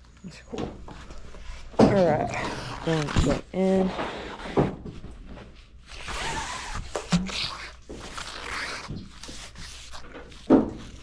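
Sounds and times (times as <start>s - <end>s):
rope scraping through gloved hands: 5.8s - 11.0s.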